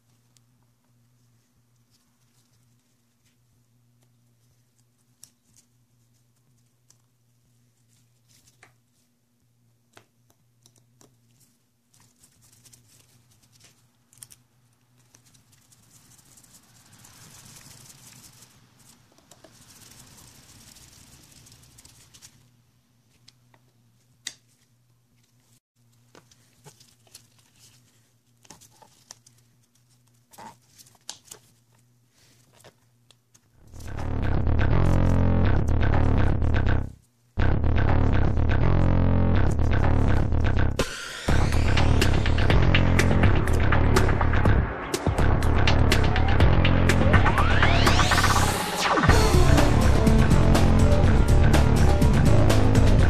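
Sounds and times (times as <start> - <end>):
gloves rustling: 0.0 - 33.9
low steady hum: 33.6 - 53.0.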